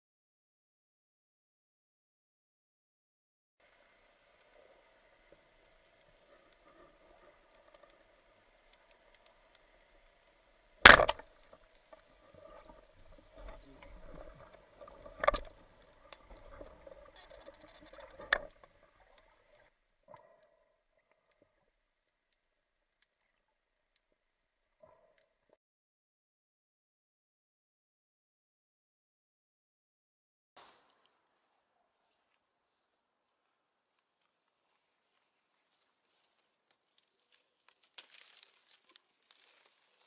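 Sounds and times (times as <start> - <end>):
speargun firing crack: 10.9 - 11.3.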